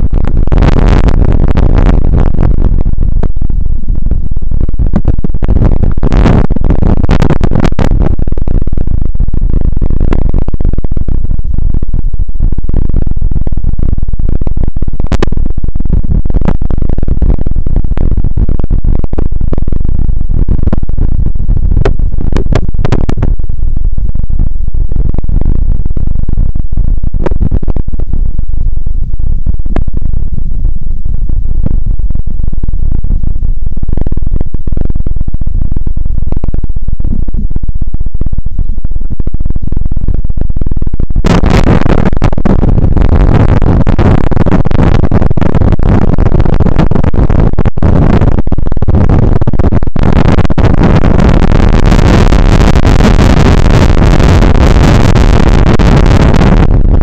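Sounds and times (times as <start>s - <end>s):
distorted water rumbling: 0.0s - 57.0s.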